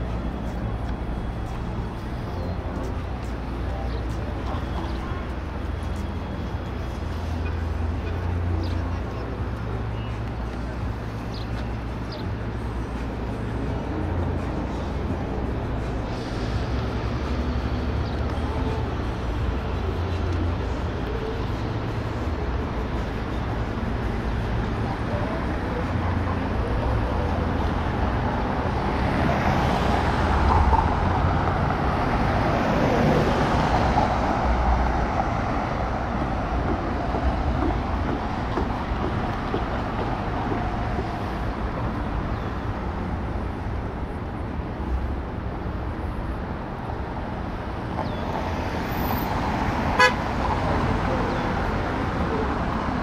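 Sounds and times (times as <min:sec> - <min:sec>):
cars driving past: 0:00.0 - 0:53.0
car horn toot: 0:50.0 - 0:50.3.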